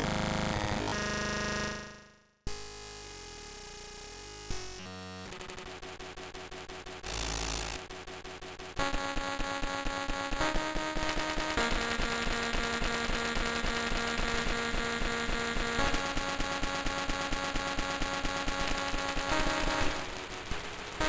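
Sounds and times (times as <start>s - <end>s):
synthesizer sustained chords: 8.8s - 21.0s.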